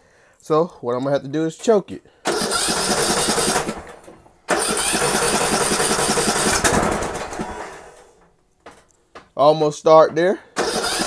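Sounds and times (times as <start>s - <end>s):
engine cranking on starter: 2.2s - 8.2s, 10.6s - 11.0s.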